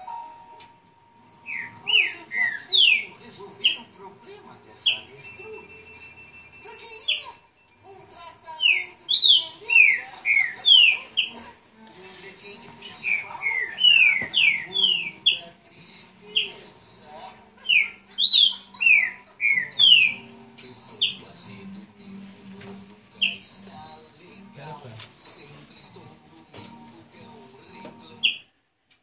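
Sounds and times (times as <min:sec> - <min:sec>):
bird singing whistled phrases: 0:01.5 - 0:03.1, 0:13.0 - 0:15.4, 0:17.7 - 0:20.3.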